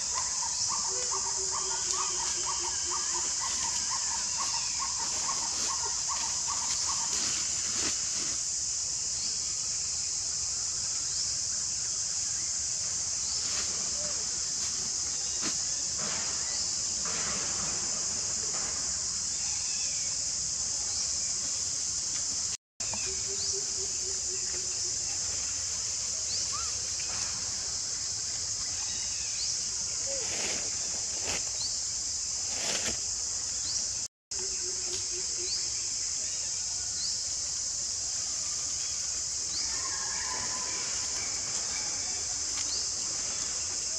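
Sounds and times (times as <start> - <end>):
leaves rustling: 0.0 - 8.9, 12.9 - 19.8, 24.9 - 33.5
high-pitched insect chorus: 0.0 - 43.9.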